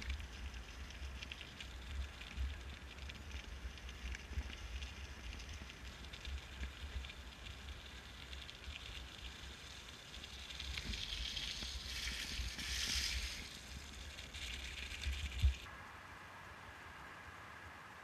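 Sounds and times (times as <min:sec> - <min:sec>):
bicycle tyres on gravel: 0:00.0 - 0:15.7
wind rumble on microphone: 0:10.4 - 0:15.7.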